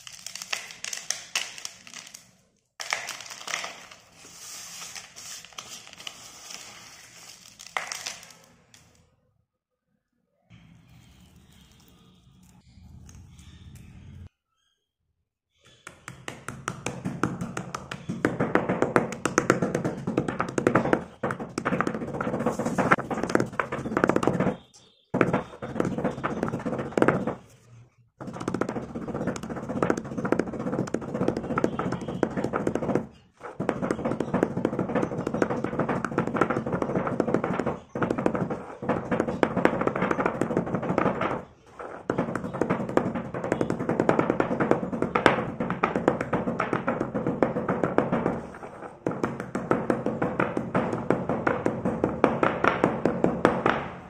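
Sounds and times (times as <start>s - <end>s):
chips crunching and scraping: 2.8s - 8.5s
pestle knocking in stone mortar: 15.9s - 24.6s, 25.2s - 27.4s, 28.2s - 54.0s.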